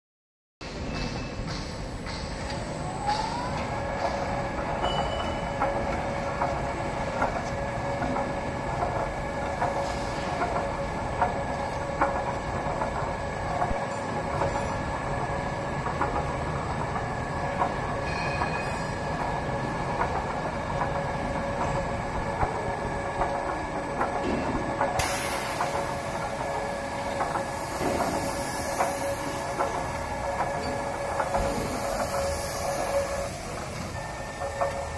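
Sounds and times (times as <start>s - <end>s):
mechanical rumble with clicks: 0.9s - 34.9s
machine motors whining: 2.4s - 34.9s
hiss: 25.0s - 34.0s.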